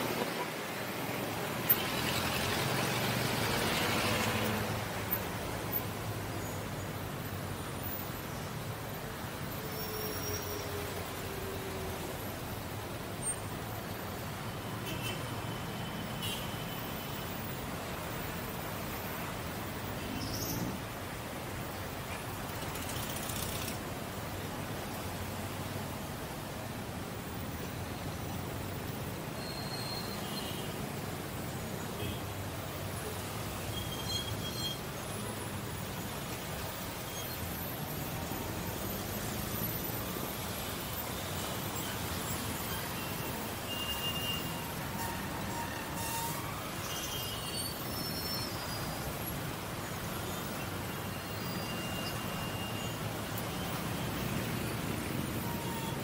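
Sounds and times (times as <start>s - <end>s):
city road traffic: 0.0s - 56.0s
brief high squeaks: 43.7s - 48.8s.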